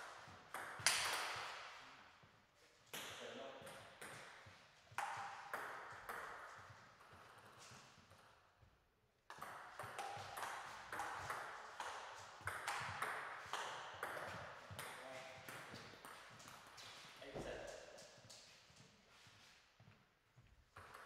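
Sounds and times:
table tennis ball knocking: 9.3s - 16.3s.

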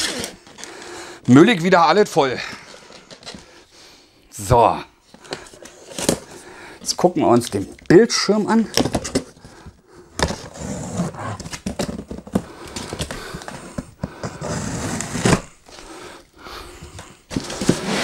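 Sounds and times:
cardboard ripping: 14.4s - 15.5s.

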